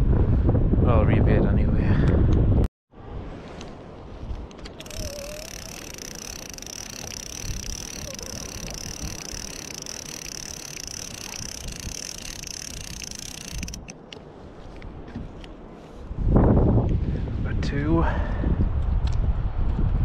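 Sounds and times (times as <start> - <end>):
fishing reel gear whirring: 4.8 - 14.1.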